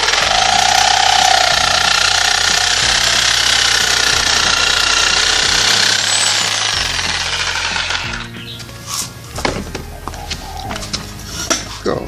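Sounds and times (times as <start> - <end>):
reciprocating saw cutting bamboo: 0.0 - 9.1.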